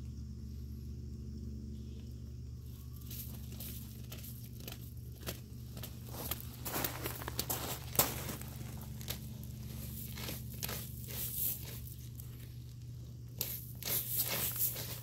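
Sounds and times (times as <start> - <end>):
dogs digging in gravel: 3.0 - 15.0.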